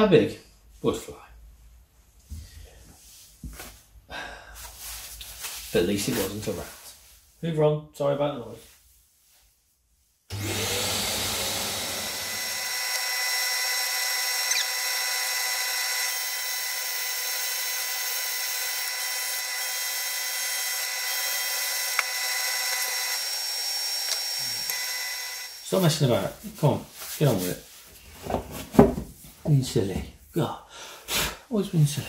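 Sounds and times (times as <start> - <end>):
woodturning lathe whine: 10.3 - 25.9
tool cutting spinning wood: 10.3 - 26.2.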